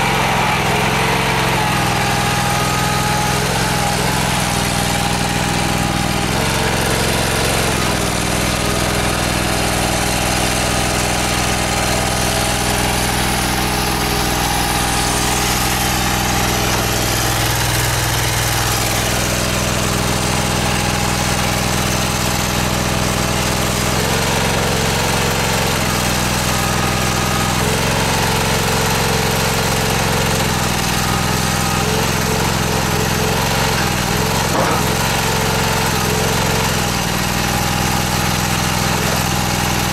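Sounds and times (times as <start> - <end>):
engine running steadily: 0.0 - 39.9.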